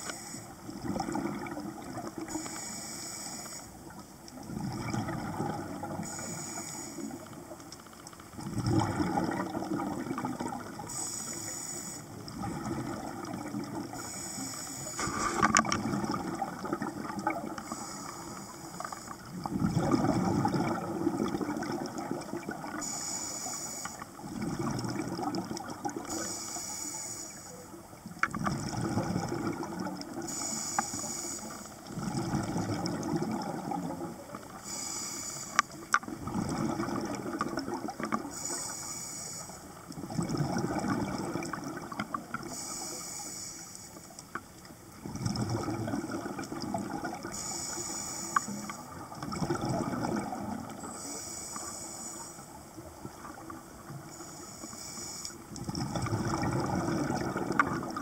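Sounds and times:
regulator inhale hiss: 0.0 - 0.7, 2.2 - 3.9, 6.0 - 7.4, 10.8 - 12.3, 13.8 - 15.7, 17.5 - 19.4, 22.7 - 24.2, 26.0 - 27.8, 30.2 - 31.9, 34.4 - 36.0, 38.2 - 39.8, 42.4 - 44.2, 47.2 - 48.9, 50.8 - 52.8, 54.0 - 55.6
rumbling gush of exhaled bubbles: 0.6 - 2.2, 4.4 - 6.1, 8.4 - 10.8, 12.2 - 14.0, 15.0 - 17.6, 19.3 - 22.8, 24.2 - 26.1, 28.4 - 30.3, 31.9 - 34.3, 36.1 - 38.3, 40.0 - 42.5, 45.0 - 47.4, 48.9 - 50.8, 55.6 - 58.0.

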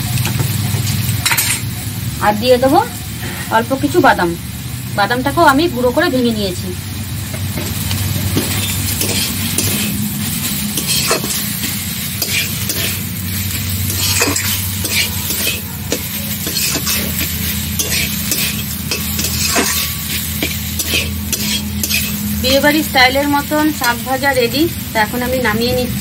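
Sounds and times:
greens sizzling in a wok: 0.0 - 26.0
steady low hum: 2.0 - 26.0
metal spatula scraping a wok: 7.6 - 24.2.

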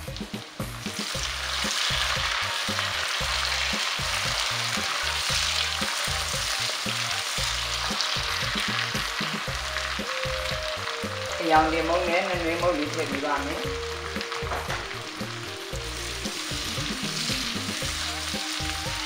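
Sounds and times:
vegetables sizzling in hot oil: 0.0 - 19.0.

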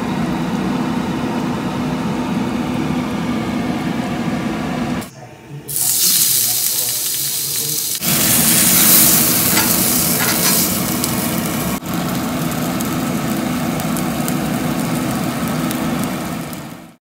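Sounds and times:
fish sizzling in oil: 5.7 - 17.0.

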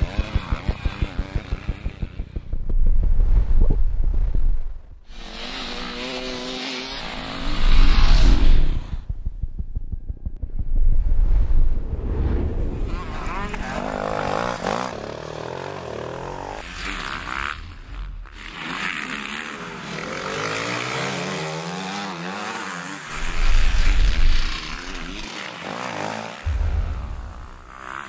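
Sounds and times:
motocross engines revving: 0.0 - 2.6, 5.1 - 9.1, 12.9 - 28.0
deep rumble: 2.2 - 5.1, 7.4 - 13.2, 26.5 - 28.0.

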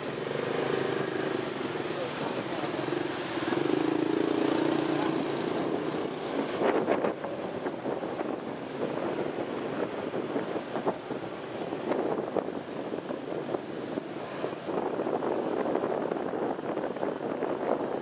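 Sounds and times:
motorbike engines humming: 0.0 - 13.4
wind buffeting microphone: 1.0 - 18.0.

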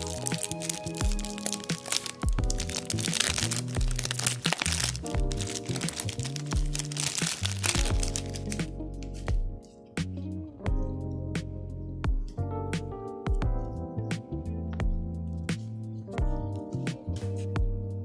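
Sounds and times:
plastic shrink-wrap crinkling: 0.0 - 9.4
background music: 0.0 - 18.0.

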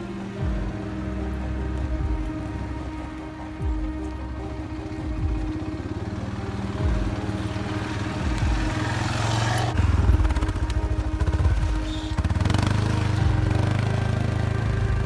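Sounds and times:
atv engine revving: 0.0 - 15.0
background music: 0.0 - 15.0.

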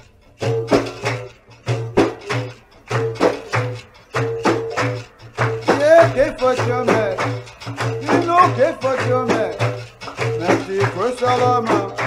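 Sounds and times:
repeating percussion rhythm: 0.0 - 12.0
person singing: 5.6 - 12.0.

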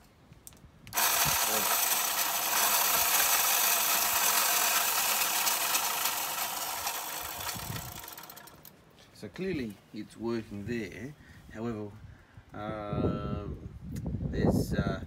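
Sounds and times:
electric motor running with rattle: 0.9 - 8.7.

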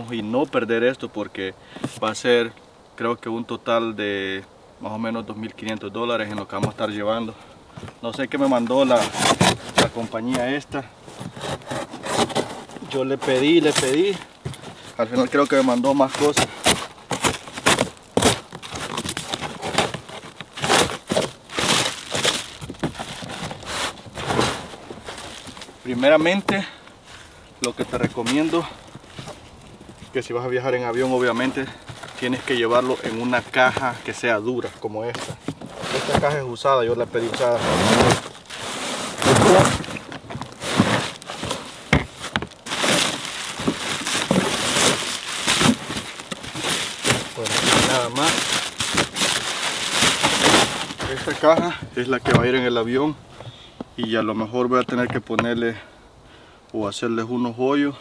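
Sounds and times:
bubble wrap crinkling: 8.2 - 36.4, 37.0 - 51.6
cardboard box ripping: 8.4 - 26.6, 34.7 - 36.4, 37.0 - 51.6.

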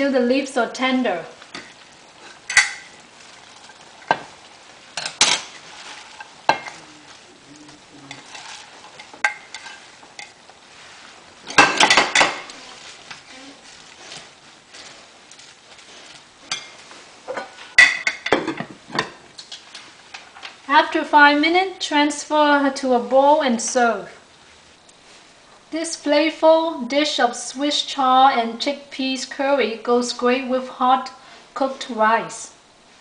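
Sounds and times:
faint sizzle: 0.0 - 33.0
plate clinking and scraping on pan: 2.4 - 3.0, 5.0 - 6.8, 8.1 - 10.4.

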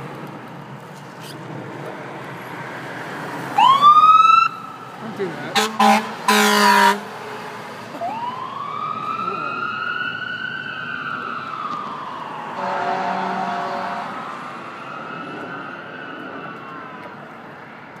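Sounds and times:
ambulance siren wailing: 3.5 - 4.9, 7.9 - 17.9
loud horn blast: 5.5 - 7.2, 12.6 - 14.2.

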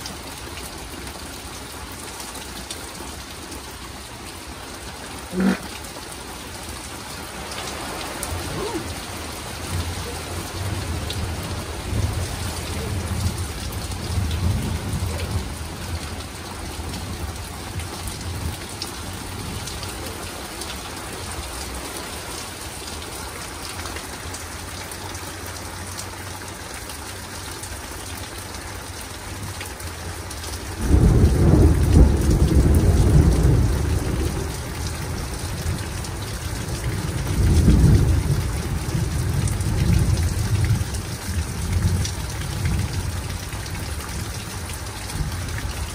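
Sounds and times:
rain hissing: 0.0 - 27.8, 28.4 - 45.9
thunder rumbling: 7.8 - 18.6, 30.8 - 35.8.

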